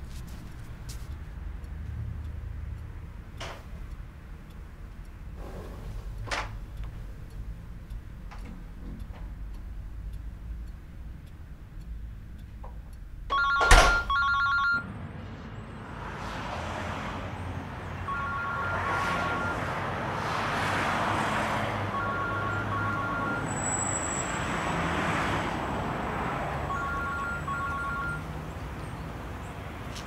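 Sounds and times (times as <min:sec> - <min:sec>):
telephone ringing two-tone trill: 0:13.3 - 0:14.8, 0:18.1 - 0:19.7, 0:21.9 - 0:23.6, 0:26.7 - 0:28.3.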